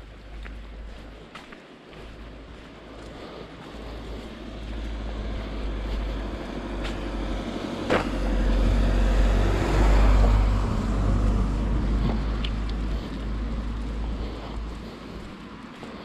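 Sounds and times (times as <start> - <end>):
car tyres hissing on wet road: 3.8 - 15.6.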